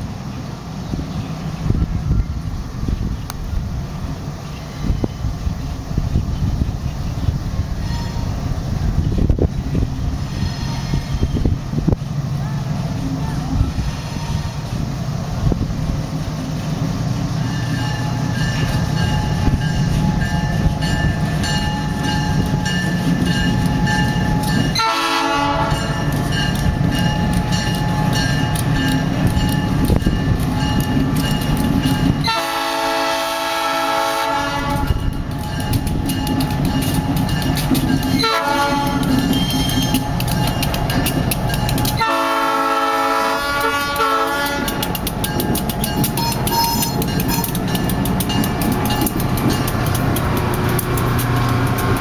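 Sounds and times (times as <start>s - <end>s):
locomotive engine rumbling: 0.0s - 52.0s
locomotive air horn blasts: 13.8s - 14.7s, 24.7s - 26.0s, 32.2s - 35.1s, 38.2s - 39.8s, 42.0s - 44.8s, 46.2s - 47.5s
crossing bell ringing: 17.4s - 32.8s, 34.6s - 52.0s.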